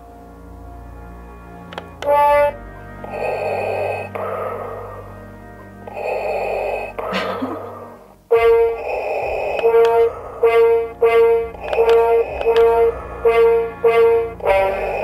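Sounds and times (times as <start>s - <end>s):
electronic toy brass-like tones: 1.0s - 7.2s, 7.8s - 15.0s.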